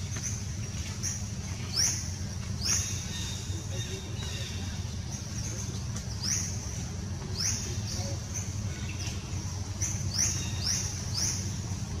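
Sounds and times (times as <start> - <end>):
bird chirping: 0.0 - 12.0.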